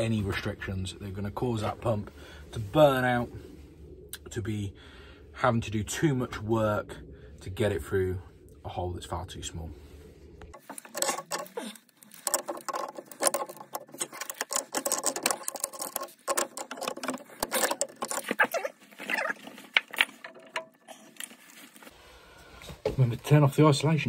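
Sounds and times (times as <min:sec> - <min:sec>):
metal clicks knocks and scraping: 0:10.5 - 0:21.4.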